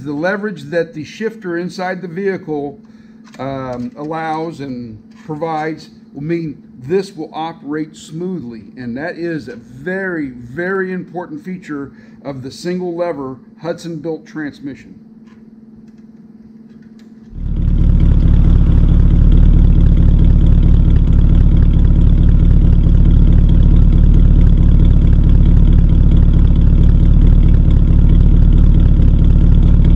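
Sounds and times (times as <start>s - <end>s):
faint hum: 0.0s - 29.9s
car engine idling: 17.3s - 29.9s.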